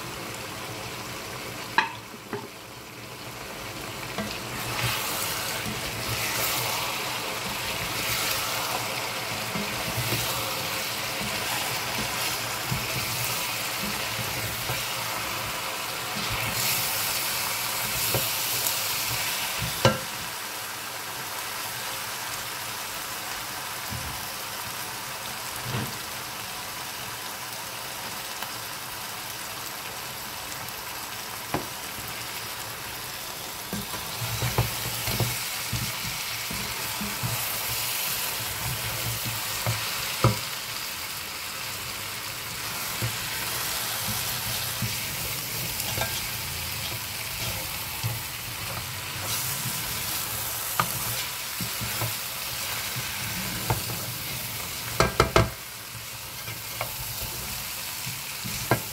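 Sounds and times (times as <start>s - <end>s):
meat sizzling in a pot: 0.0s - 58.9s
spoon knocking against pot: 1.8s - 2.5s, 55.0s - 55.6s
spoon stirring and scraping meat: 4.0s - 20.0s, 33.7s - 40.8s, 42.5s - 58.9s.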